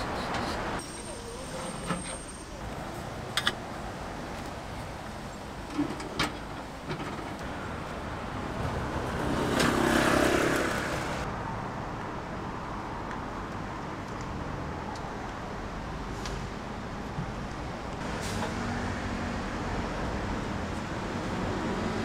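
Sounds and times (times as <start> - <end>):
street traffic: 0.0 - 22.0
vehicle passing close by: 7.6 - 11.3.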